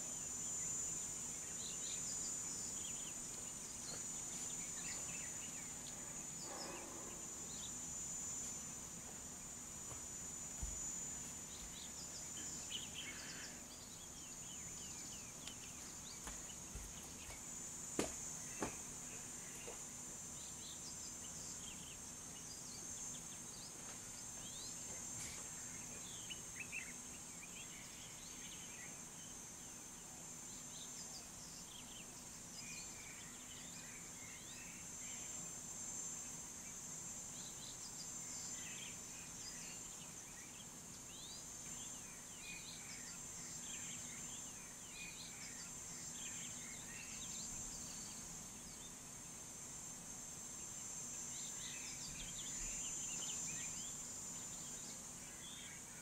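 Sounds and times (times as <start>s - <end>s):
high-pitched insect drone: 0.0s - 56.0s.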